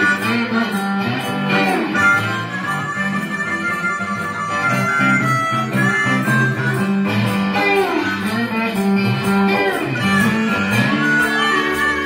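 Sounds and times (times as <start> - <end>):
guitar playing low riff: 0.0 - 12.0
harmonica holding notes: 0.0 - 12.0.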